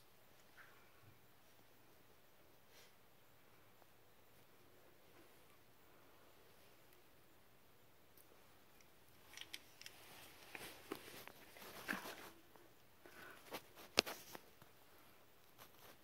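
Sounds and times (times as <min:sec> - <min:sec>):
person shifting in cave crawlway: 0:09.3 - 0:12.4.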